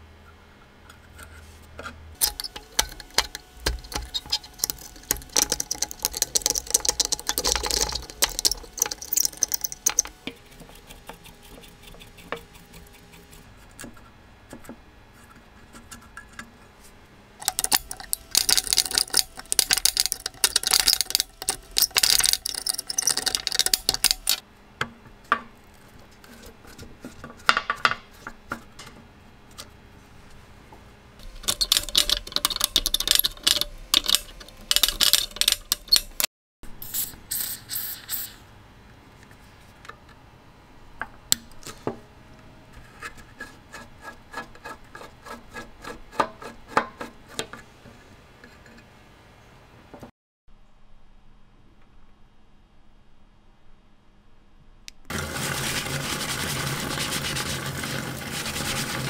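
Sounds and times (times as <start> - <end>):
screwdriver clicking on metal: 2.2 - 13.3, 17.4 - 24.4, 31.2 - 36.2.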